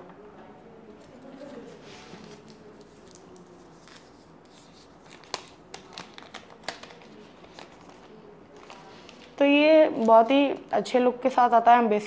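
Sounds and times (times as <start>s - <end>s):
plastic sleeve clicks and crinkles: 5.0s - 9.4s.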